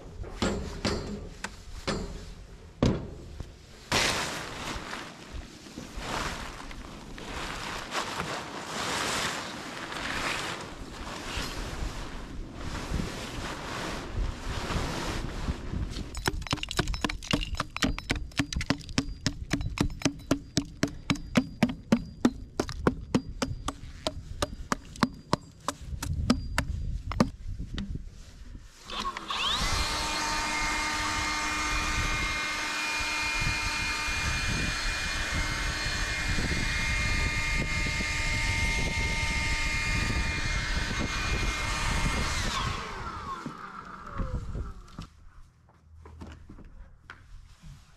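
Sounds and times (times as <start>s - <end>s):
cordless drill boring into wood: 28.9s - 31.8s.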